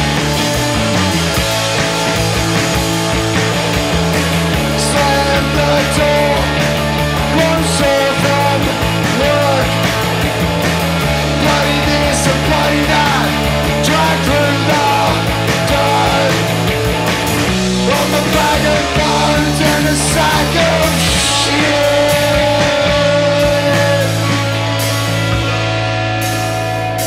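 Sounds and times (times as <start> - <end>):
punk rock band playing: 0.0 - 27.0
person singing into microphone: 4.7 - 6.6, 7.3 - 9.9, 11.3 - 16.5, 17.8 - 24.5.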